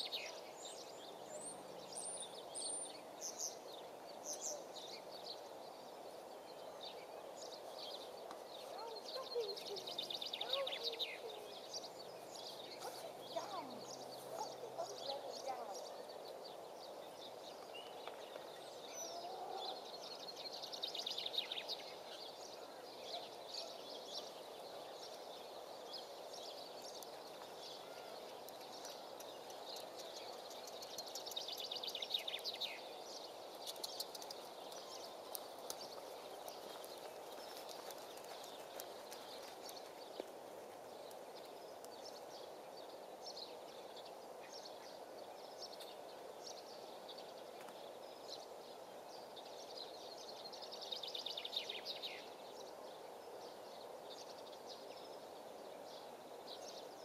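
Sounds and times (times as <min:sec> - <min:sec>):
rapid high-pitched bird chirping: 0:28.5 - 0:39.9.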